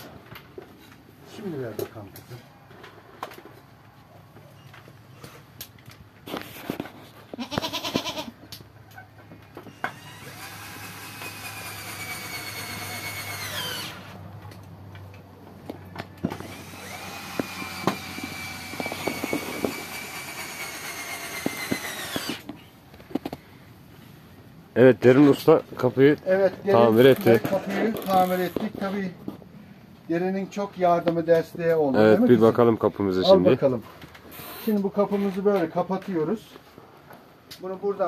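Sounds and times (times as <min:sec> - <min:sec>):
cordless drill driving screws: 0:09.6 - 0:14.2, 0:16.2 - 0:22.6.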